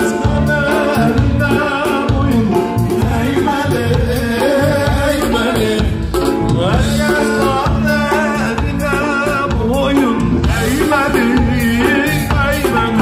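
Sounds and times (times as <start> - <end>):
live band dance music: 0.0 - 13.0
person singing: 0.0 - 13.0.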